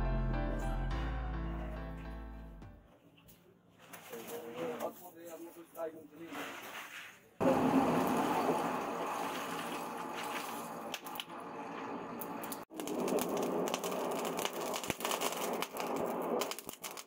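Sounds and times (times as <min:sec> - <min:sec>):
coals crackling and popping: 0:07.4 - 0:17.0
forge fire rushing: 0:07.4 - 0:17.0.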